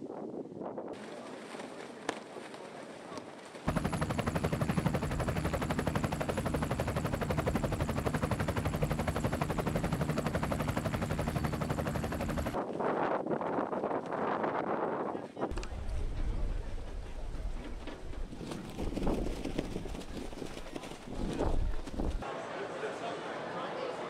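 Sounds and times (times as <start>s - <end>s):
helicopter rotor beating: 3.7s - 12.6s, 15.8s - 22.2s.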